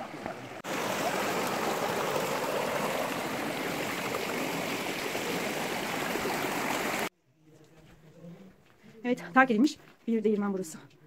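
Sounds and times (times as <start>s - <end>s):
stream rushing over rocks: 0.0s - 7.1s.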